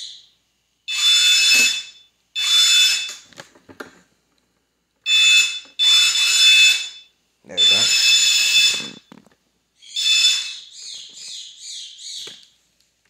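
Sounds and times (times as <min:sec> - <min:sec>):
warning buzzer bursts: 0:00.9 - 0:03.2, 0:05.1 - 0:09.1, 0:09.9 - 0:10.7.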